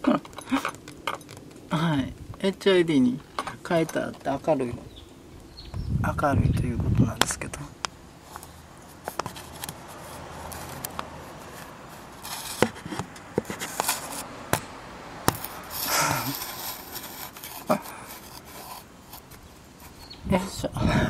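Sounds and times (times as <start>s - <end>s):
rustling scrape: 8.2s - 14.4s, 15.3s - 20.2s.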